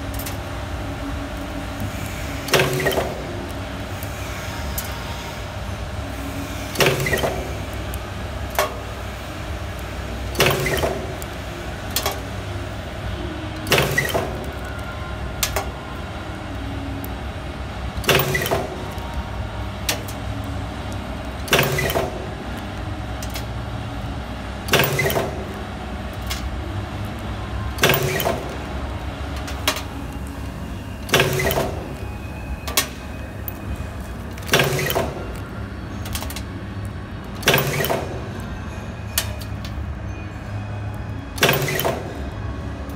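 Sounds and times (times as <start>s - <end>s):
steady low hum: 0.0s - 41.4s
light machine clicks: 10.3s - 11.3s, 18.0s - 18.7s, 21.5s - 22.2s, 24.7s - 25.4s, 37.4s - 38.1s.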